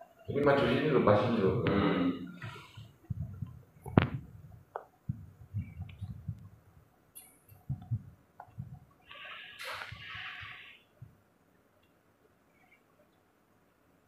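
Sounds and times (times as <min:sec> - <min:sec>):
rustling hiss: 0:09.0 - 0:11.2.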